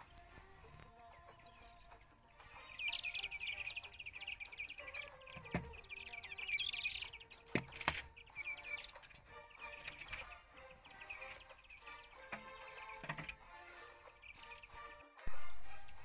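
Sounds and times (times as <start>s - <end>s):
bird chattering call: 1.3s - 13.4s.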